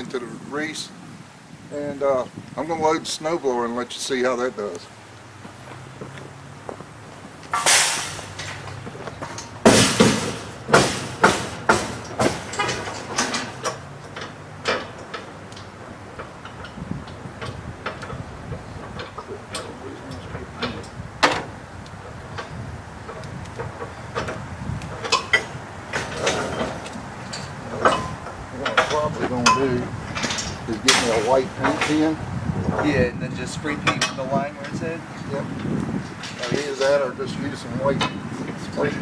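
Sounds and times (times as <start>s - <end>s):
metal knocks: 7.4s - 39.0s
sharp metal clanks: 7.5s - 18.2s, 25.0s - 32.9s
metal rack scraping: 7.5s - 33.1s, 35.6s - 39.0s.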